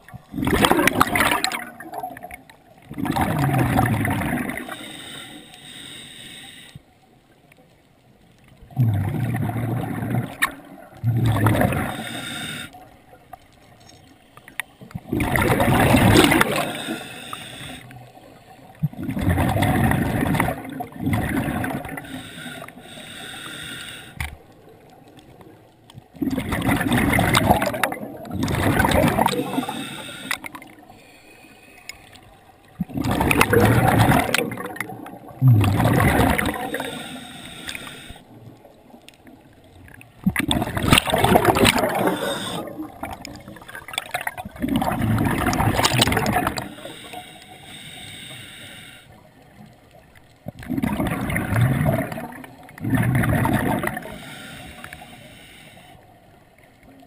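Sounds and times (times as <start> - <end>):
gurgling exhaled bubbles: 0.0 - 4.8, 8.6 - 12.6, 14.9 - 17.0, 18.7 - 22.2, 24.6 - 30.8, 32.6 - 37.2, 39.3 - 47.2, 50.4 - 54.4.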